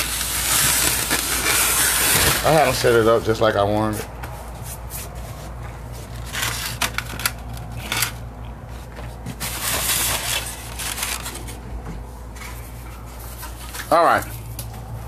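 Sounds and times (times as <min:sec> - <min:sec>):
steady low hum: 0:00.0 - 0:15.0
plastic crinkling rustle: 0:09.3 - 0:11.6.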